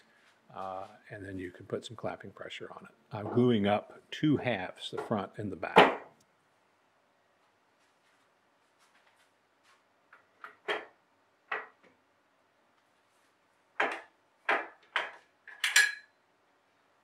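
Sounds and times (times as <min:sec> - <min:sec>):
wooden knocks and clatter: 0:10.2 - 0:12.0, 0:13.8 - 0:15.8.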